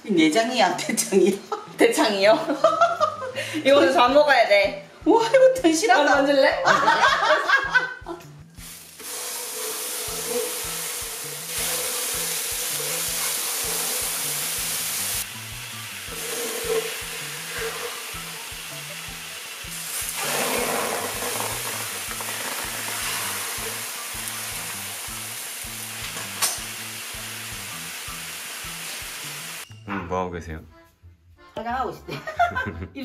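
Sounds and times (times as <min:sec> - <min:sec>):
meat sizzling on grill pan: 0:08.6 - 0:29.6.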